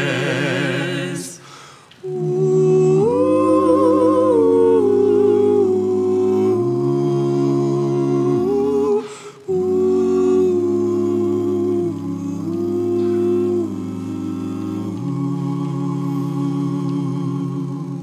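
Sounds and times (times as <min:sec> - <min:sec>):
vocal quartet singing in harmony: 0:00.0 - 0:18.0.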